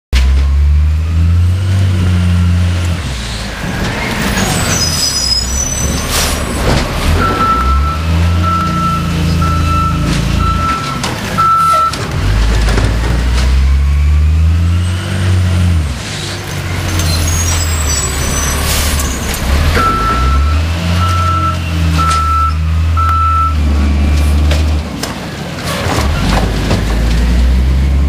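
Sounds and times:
garbage truck diesel engine: 0:00.2 - 0:28.0
brief high squeal: 0:04.4 - 0:06.4, 0:16.9 - 0:19.2
backup alarm beeping: 0:07.2 - 0:12.0, 0:19.7 - 0:23.8.

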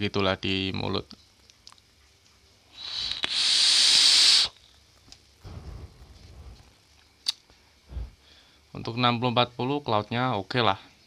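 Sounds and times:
breathy exhale: 0:02.7 - 0:04.5, 0:07.9 - 0:08.7
vape inhale hiss: 0:02.7 - 0:04.6.

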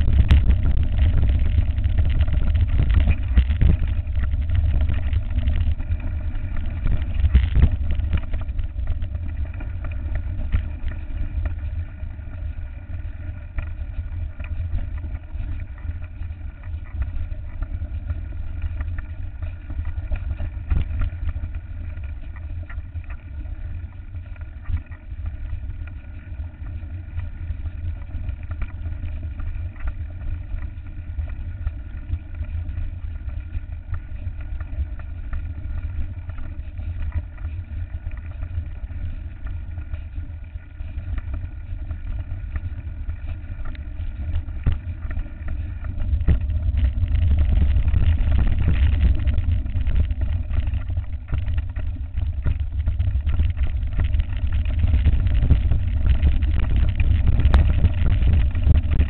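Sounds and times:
wind buffeting microphone: 0:00.0 - 0:21.7, 0:41.9 - 0:59.0.

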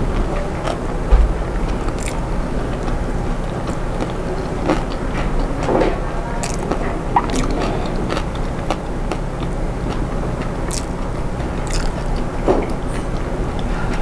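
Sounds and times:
fingers tearing crisp fried fish: 0:01.8 - 0:02.3, 0:06.4 - 0:08.8, 0:11.6 - 0:12.2.

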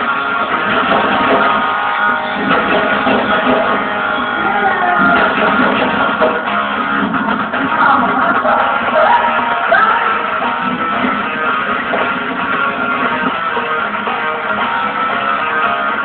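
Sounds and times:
music with strummed guitar: 0:00.0 - 0:16.0.

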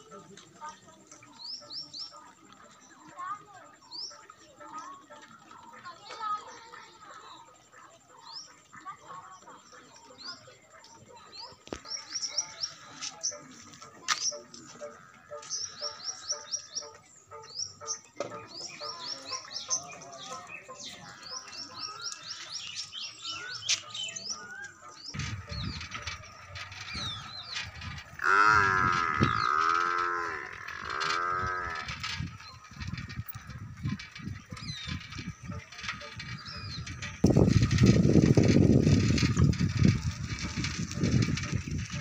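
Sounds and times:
small birds chirping: 0:00.0 - 0:42.0
cow mooing: 0:28.2 - 0:32.0.

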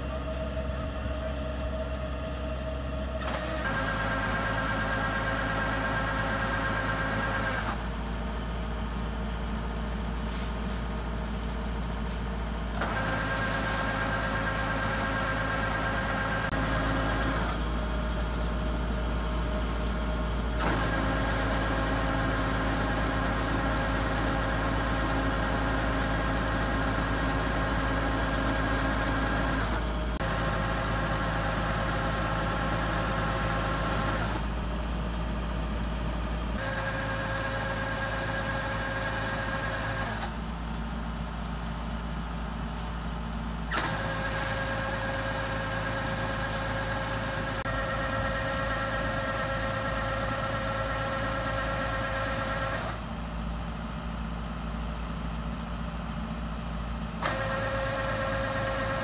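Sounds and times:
combine harvester engine running: 0:00.0 - 0:59.0.

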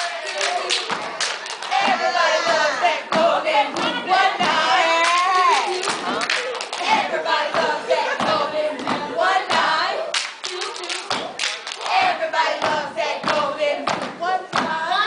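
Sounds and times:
hand claps: 0:00.0 - 0:01.8, 0:10.1 - 0:12.0
voices chanting: 0:00.0 - 0:15.0
rhythmic stomps on stage floor: 0:01.8 - 0:06.2, 0:06.9 - 0:09.9, 0:12.0 - 0:15.0.

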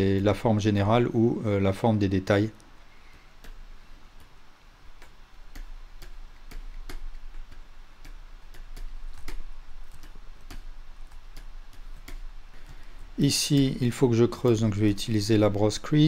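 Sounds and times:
faint low hum: 0:00.0 - 0:16.0
computer mouse clicks: 0:02.6 - 0:03.6, 0:04.2 - 0:13.8.

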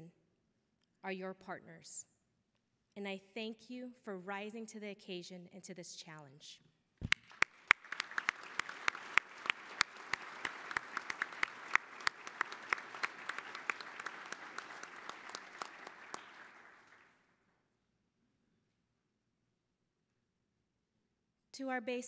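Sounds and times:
close sharp claps: 0:07.0 - 0:17.3
audience applauding: 0:07.1 - 0:17.2.

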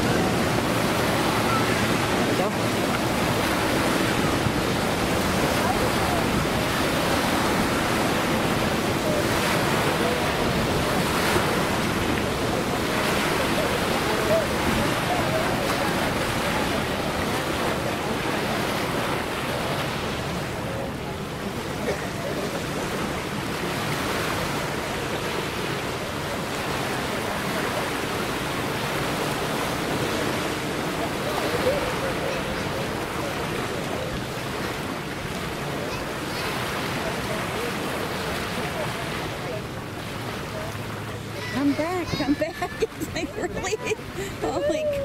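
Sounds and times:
small waves washing ashore: 0:00.0 - 0:45.0
wind: 0:00.0 - 0:45.0.

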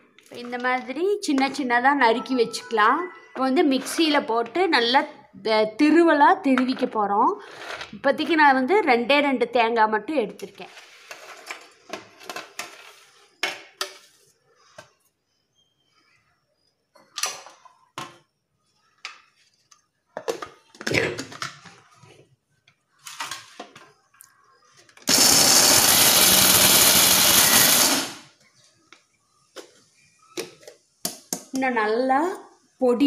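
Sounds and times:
electric mixer grinder running: 0:25.1 - 0:28.3.

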